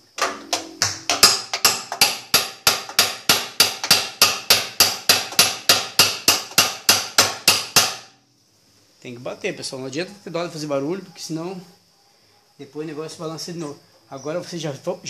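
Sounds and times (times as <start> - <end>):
hammer striking metal nut: 0.2 - 8.0.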